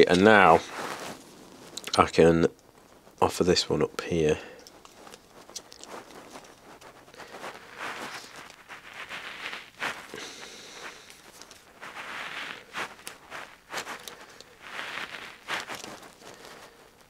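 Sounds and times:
soft hisses: 0.0s - 17.0s
light handling clicks and rustles: 4.5s - 7.5s.

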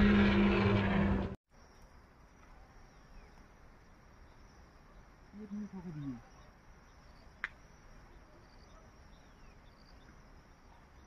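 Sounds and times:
loud low droning: 0.0s - 1.4s
insect trill: 1.5s - 11.0s.

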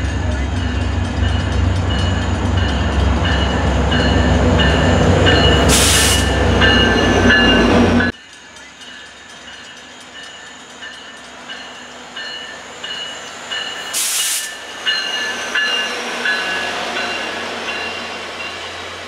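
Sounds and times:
diesel train passing: 0.0s - 19.0s.

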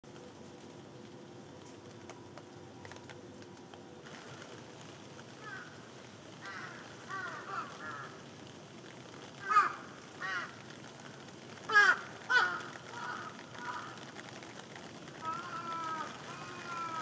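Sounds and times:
rain hissing: 0.0s - 17.0s
crow cawing: 5.4s - 5.8s, 6.4s - 8.2s, 9.4s - 10.6s, 11.6s - 14.2s, 15.2s - 17.0s.

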